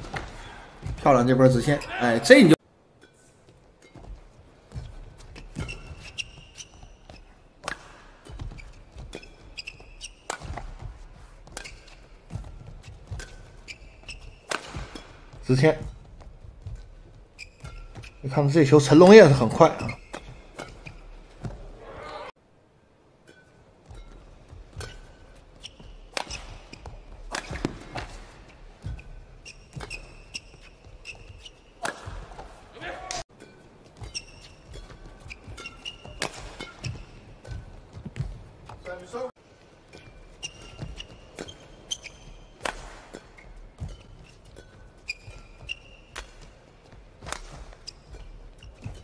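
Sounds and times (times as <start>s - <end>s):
racket hitting shuttlecock: 0.0s - 1.0s, 3.0s - 18.3s, 20.0s - 21.8s, 23.2s - 38.9s, 39.9s - 49.0s
shoes squeaking: 0.0s - 22.3s, 23.0s - 49.0s
footfalls on court mat: 23.9s - 33.2s.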